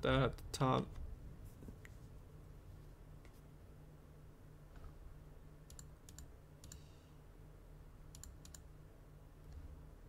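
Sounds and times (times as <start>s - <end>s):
low steady hum: 0.0s - 10.0s
mouse and keyboard clicks: 8.1s - 8.6s.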